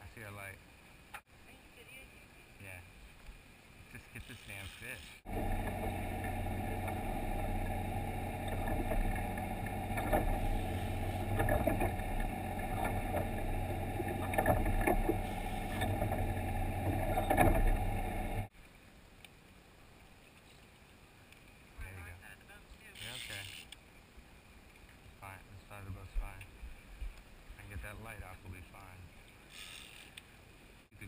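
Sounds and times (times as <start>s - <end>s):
faint hiss: 0.0s - 9.4s
boat engine droning: 5.3s - 18.5s.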